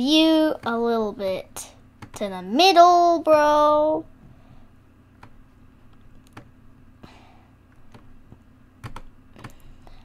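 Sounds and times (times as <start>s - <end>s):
faint low hum: 0.0s - 10.0s
keyboard and mouse clicks: 5.2s - 6.5s, 7.7s - 9.8s.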